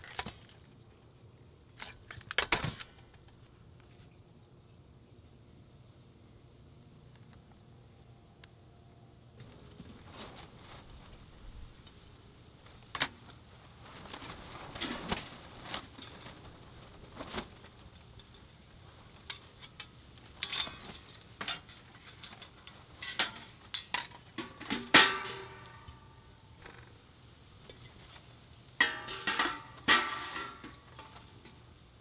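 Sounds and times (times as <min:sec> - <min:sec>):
metal pot parts clinking: 0:19.3 - 0:25.9, 0:28.8 - 0:31.2.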